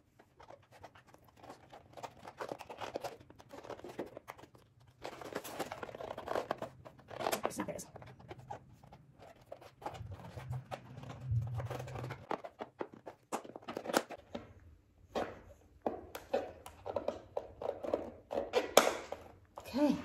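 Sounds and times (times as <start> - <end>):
plastic sheet crinkling: 0.0 - 14.2.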